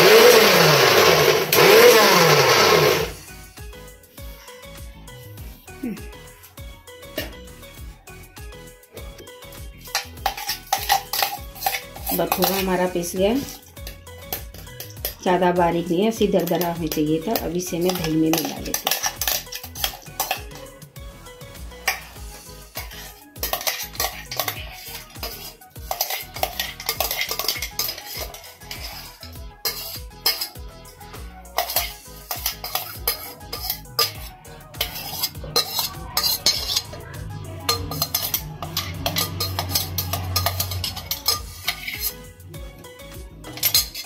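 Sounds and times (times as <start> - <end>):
background music: 0.0 - 44.0
spoon scraping steel jar: 9.8 - 15.2, 16.3 - 20.8, 21.8 - 30.7, 31.4 - 42.4, 43.4 - 44.0.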